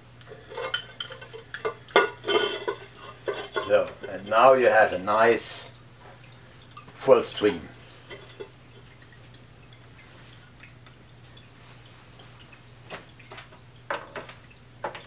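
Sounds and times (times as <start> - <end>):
water trickling into bowl: 0.2 - 15.0.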